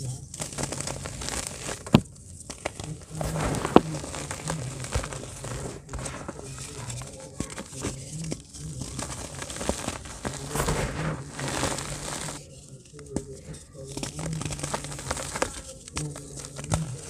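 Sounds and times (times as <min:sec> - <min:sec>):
clods cracking: 0:00.0 - 0:17.0
dirt crunching and rustling by hand: 0:00.0 - 0:17.0.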